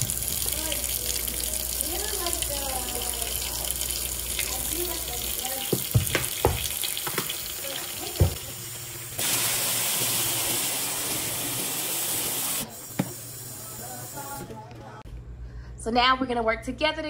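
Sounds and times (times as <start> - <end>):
tap running into sink: 5.5 - 7.4.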